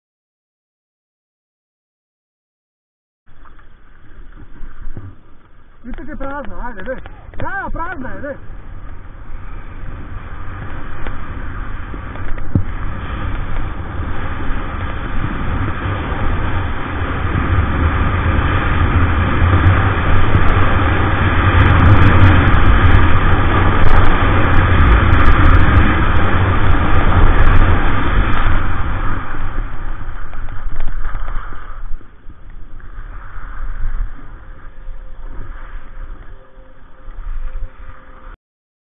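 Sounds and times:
wind buffeting microphone: 3.3 - 38.4
skis hissing on snow: 30.9 - 32.1, 32.7 - 36.2.

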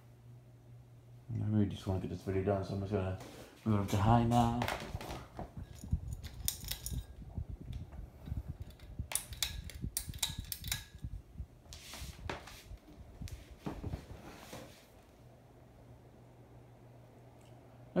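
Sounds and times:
ceiling fan motor hum: 0.0 - 18.0
chain jangling against metal housing: 5.6 - 7.2.

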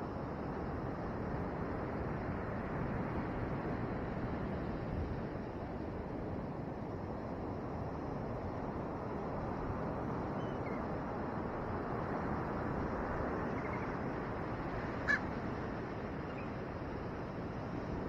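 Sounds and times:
raven calling: 14.9 - 15.4.

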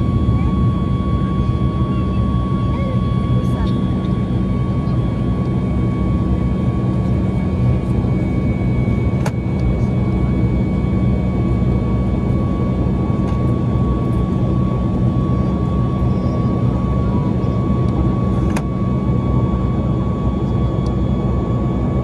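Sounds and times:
jet engine roar in cabin: 0.0 - 22.0.

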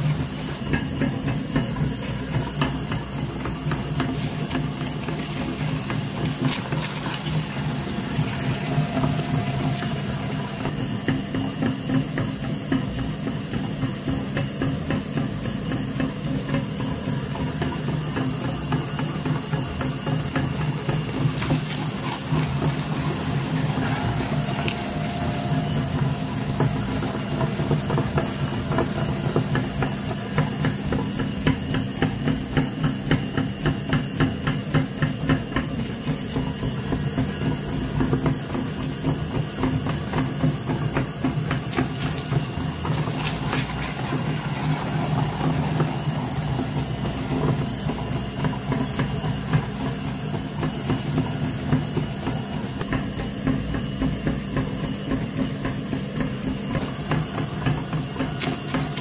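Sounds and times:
meat grinder motor hum: 0.0 - 59.0
auger crunching and clicking: 3.9 - 10.7, 20.4 - 28.7, 41.4 - 44.4, 58.2 - 59.0.

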